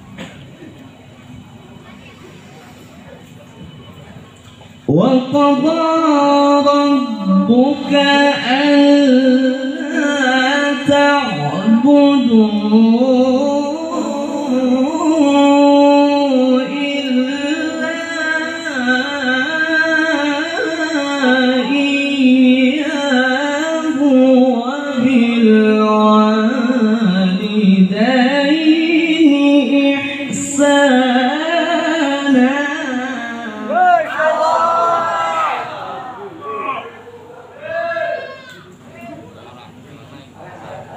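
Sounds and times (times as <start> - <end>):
man reciting melodically through microphone: 4.8 - 34.3.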